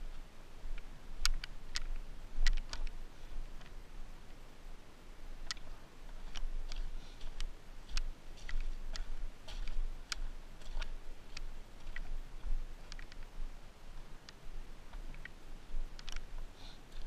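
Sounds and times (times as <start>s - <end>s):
footsteps on wet gravel: 5.6s - 15.1s.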